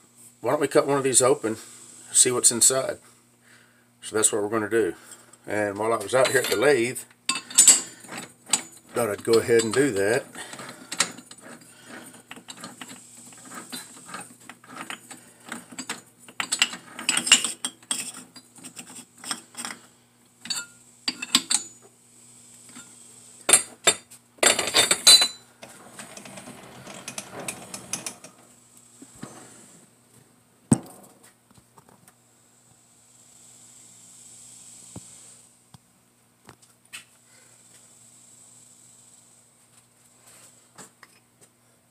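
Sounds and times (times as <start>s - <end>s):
metallic clicks and scrapes: 5.9s - 21.8s, 22.7s - 28.4s.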